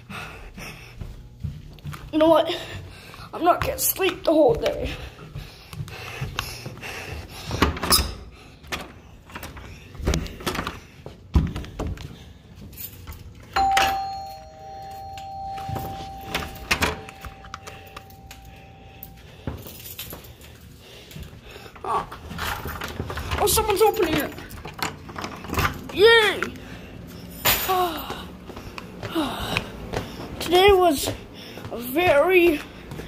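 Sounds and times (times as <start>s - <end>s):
two-tone doorbell chime: 13.6s - 19.5s.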